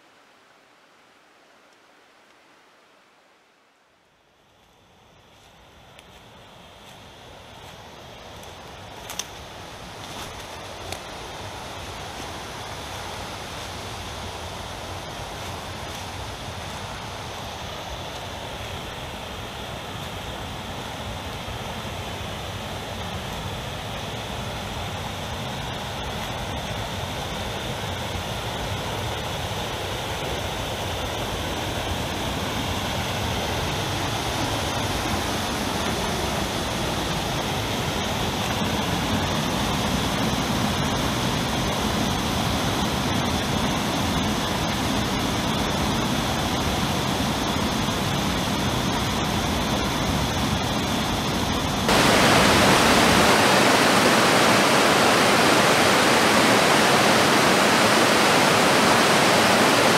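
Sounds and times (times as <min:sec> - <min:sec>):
stream cascading over rocks: 0:51.9 - 0:59.9.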